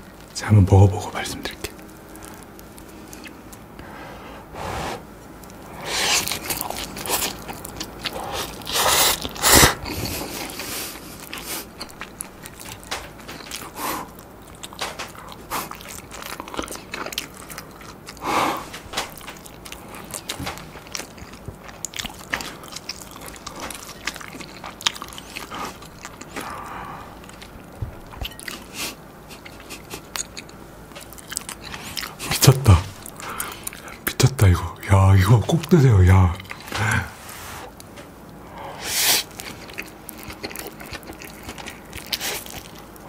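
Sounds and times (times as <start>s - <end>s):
chewing: 1.4s - 3.8s, 5.0s - 34.3s, 35.5s - 37.1s, 37.7s - 43.0s
noodles slurping: 4.6s - 12.8s.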